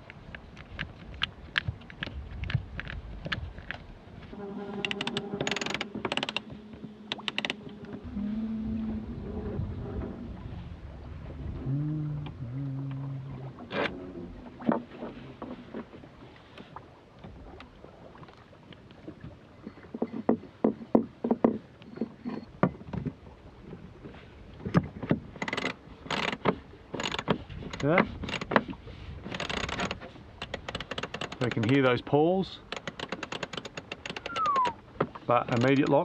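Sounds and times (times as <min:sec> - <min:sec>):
winch pawls ratcheting: 0:04.8 - 0:06.5, 0:07.1 - 0:07.6, 0:25.4 - 0:28.6, 0:29.2 - 0:31.8, 0:32.7 - 0:34.8, 0:35.4 - 0:36.0.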